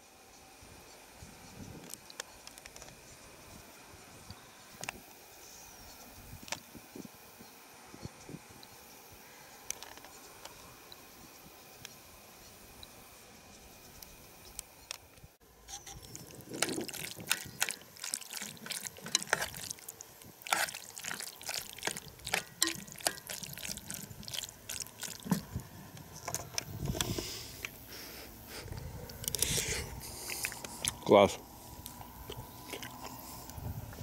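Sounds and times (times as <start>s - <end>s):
utensil clinking in a pot: 15.7s - 25.5s
food being stirred: 15.7s - 26.3s.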